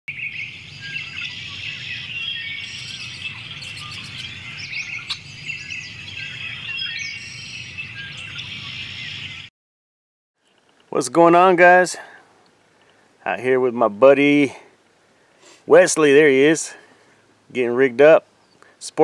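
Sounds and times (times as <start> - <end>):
small birds chirping: 0.1 - 9.5, 18.2 - 18.8.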